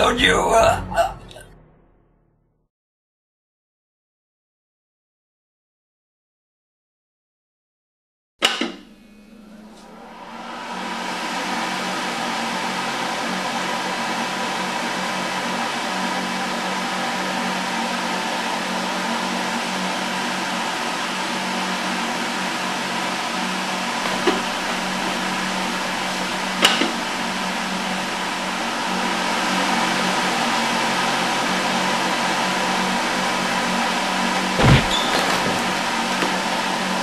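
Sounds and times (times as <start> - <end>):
electric hand dryer blowing: 9.3 - 37.0.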